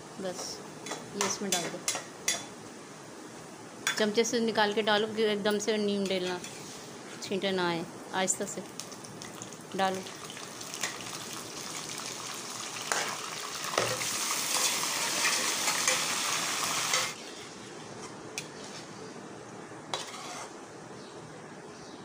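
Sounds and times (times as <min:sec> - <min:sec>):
meat sizzling in a wok: 0:08.7 - 0:17.2.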